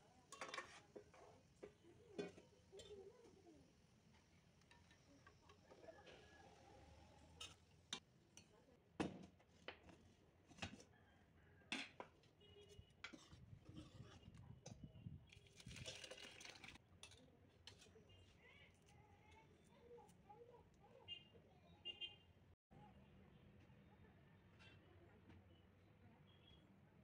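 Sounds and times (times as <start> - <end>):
ladle scraping steel pot: 12.7 - 17.9.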